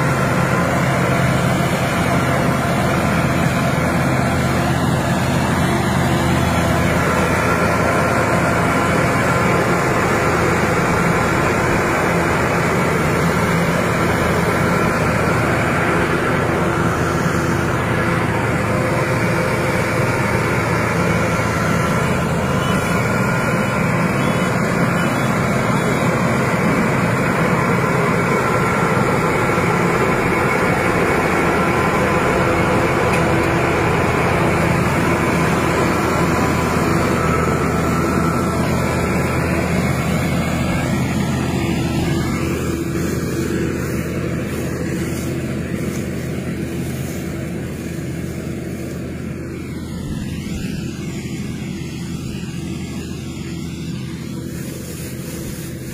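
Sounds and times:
combine harvester engine running: 0.0 - 55.9.

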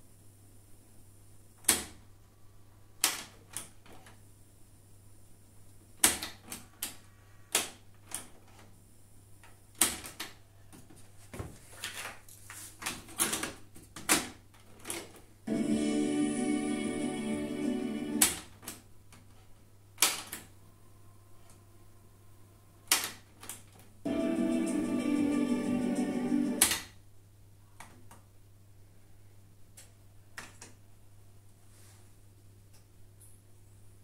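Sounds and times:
low steady hum: 15.4 - 22.9.

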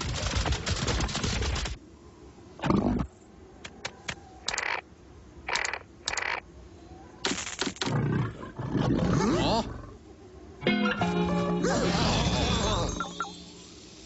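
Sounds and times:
cartoon clicks: 3.8 - 4.8, 5.5 - 6.4.

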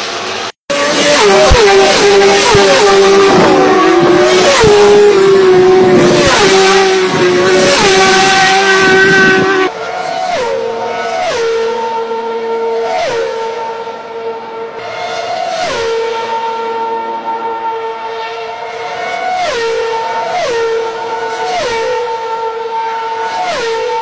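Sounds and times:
distant racing engine: 0.0 - 24.0
racing motorcycles passing: 0.0 - 24.0.

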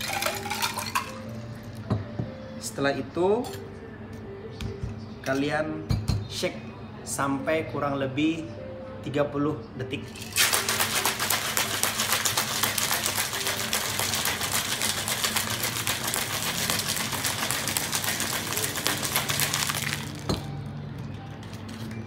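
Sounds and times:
ice rattling in cocktail shaker: 0.0 - 1.3, 10.1 - 20.5.

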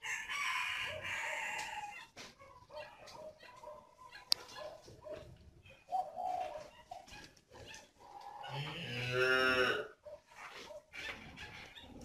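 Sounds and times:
cow mooing: 8.5 - 10.0.

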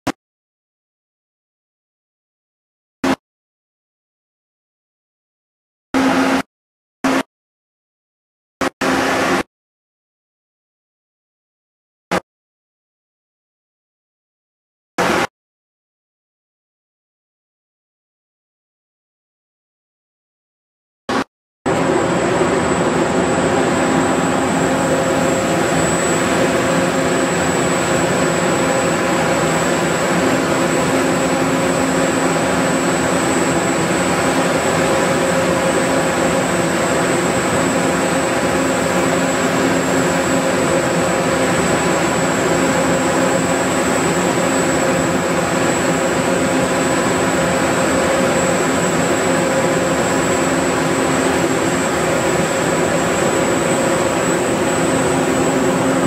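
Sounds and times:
diesel generator engine drone: 21.1 - 56.0.

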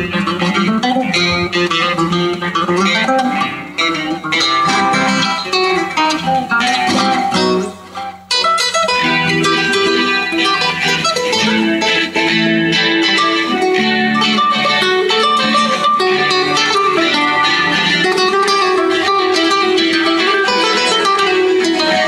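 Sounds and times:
acoustic guitars flamenco duet: 0.0 - 22.0.

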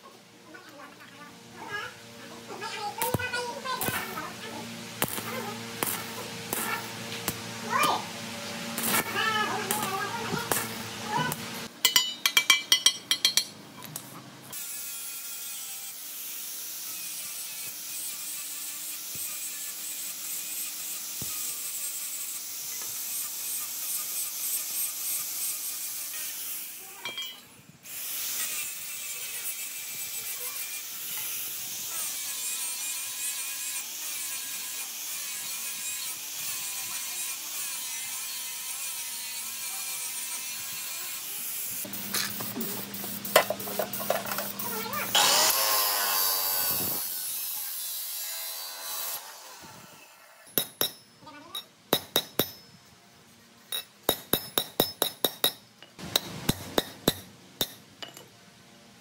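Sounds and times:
tool scraping rusty metal: 42.0 - 45.6.

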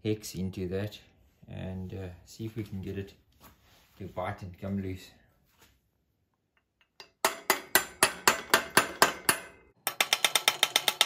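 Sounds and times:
hammer striking metal driver: 6.8 - 11.0.

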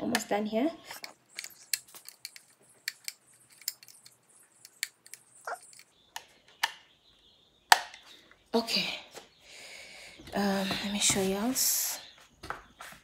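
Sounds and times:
screwdriver clicking and scraping: 0.8 - 6.0.

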